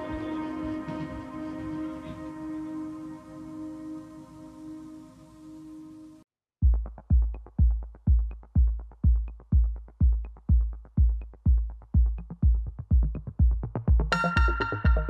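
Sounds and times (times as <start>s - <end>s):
electronic background music: 0.0s - 6.2s, 6.8s - 15.0s
steady kick drum: 6.6s - 15.0s
bright synth chord: 14.1s - 15.0s.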